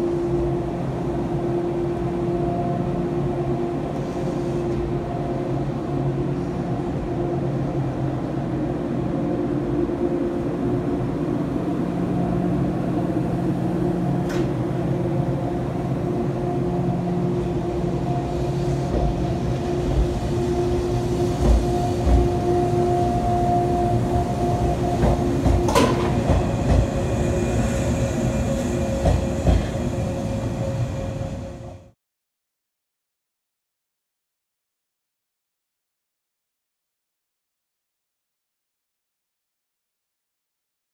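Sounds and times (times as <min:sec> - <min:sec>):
electric train humming: 0:00.0 - 0:32.0.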